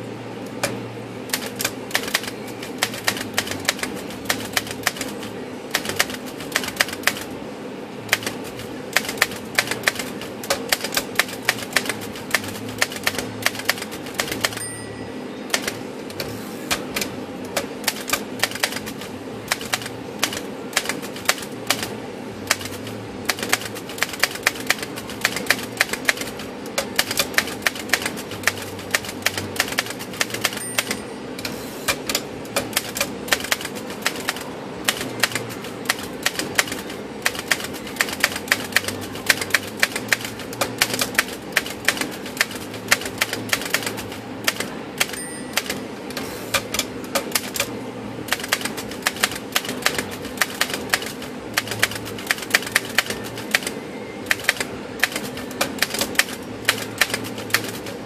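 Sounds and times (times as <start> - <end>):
manual typewriter typing: 0.6 - 7.3, 8.1 - 14.7, 15.5 - 58.0
typewriter carriage return: 0.6 - 7.3, 8.1 - 14.8, 15.5 - 58.0
typewriter bell ring: 14.3 - 15.7, 30.2 - 31.2, 45.0 - 45.9.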